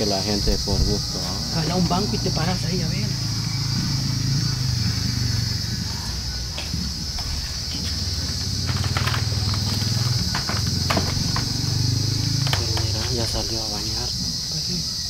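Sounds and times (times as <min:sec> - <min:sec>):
high buzz of insects: 0:00.0 - 0:15.0
plastic stool knocks: 0:08.6 - 0:11.6.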